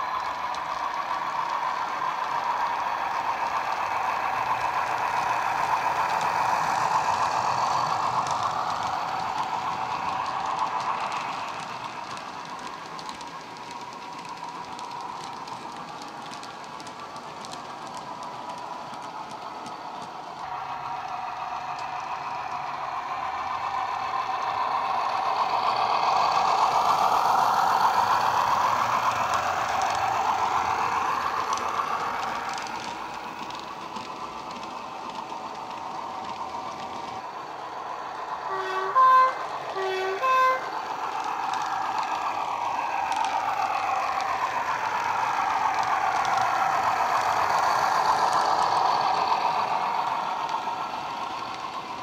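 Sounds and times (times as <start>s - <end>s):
model train diesel engine drone: 0.0s - 52.0s
train horn toots: 38.5s - 40.7s.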